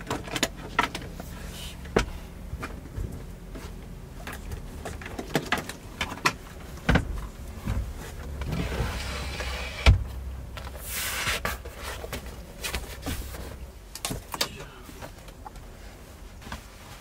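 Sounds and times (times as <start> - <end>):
fabric and sleeping bag rustling: 15.2 - 17.0.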